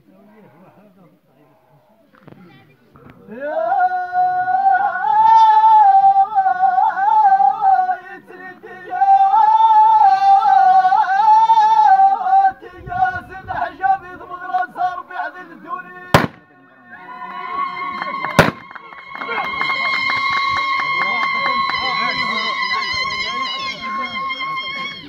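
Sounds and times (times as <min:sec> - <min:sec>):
man singing unaccompanied: 0:03.3 - 0:17.0.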